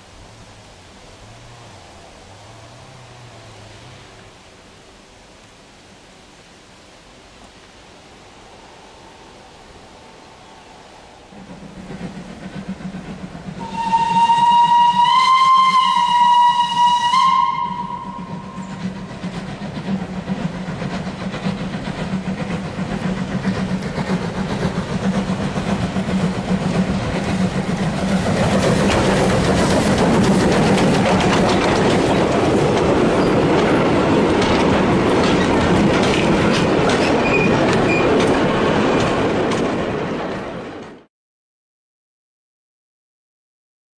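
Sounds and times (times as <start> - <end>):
steam train rumbling past: 0.0 - 4.7, 7.8 - 41.1
steam locomotive whistle: 13.6 - 19.1
wheels clacking over rail joints: 17.7 - 41.1.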